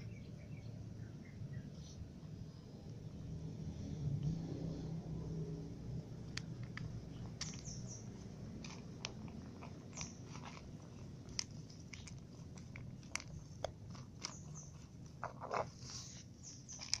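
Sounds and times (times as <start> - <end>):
steady low rumble: 0.0 - 15.2
cat crunching food: 4.2 - 17.0.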